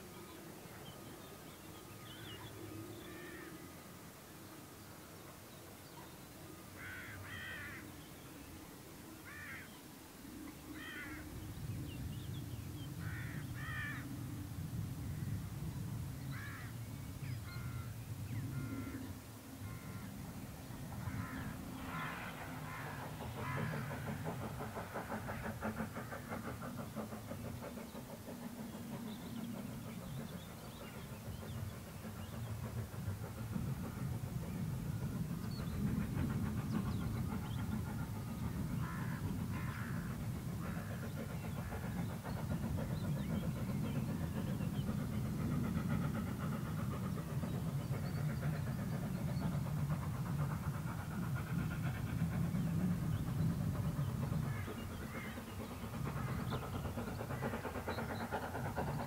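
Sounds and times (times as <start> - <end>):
steam locomotive exhaust beats: 0.0 - 59.0
train rumble: 0.0 - 59.0.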